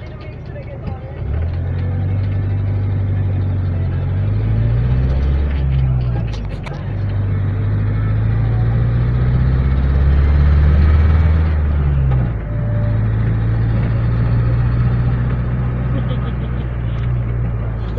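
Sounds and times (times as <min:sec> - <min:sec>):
minibus engine drone: 0:00.0 - 0:17.9.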